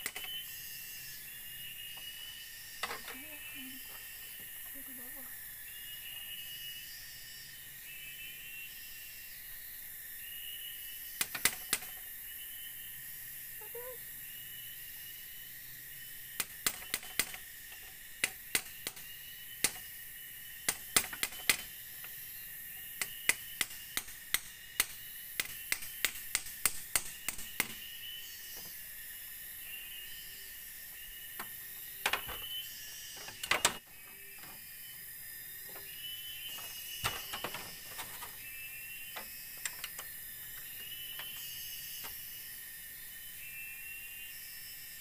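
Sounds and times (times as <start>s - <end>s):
bamboo clicking and knocking: 0.0s - 0.4s, 11.2s - 12.0s, 16.4s - 19.9s, 20.6s - 22.2s, 22.9s - 27.8s, 31.4s - 32.5s, 33.2s - 34.6s, 36.5s - 38.4s, 39.1s - 42.2s
forest insects droning: 0.0s - 45.0s.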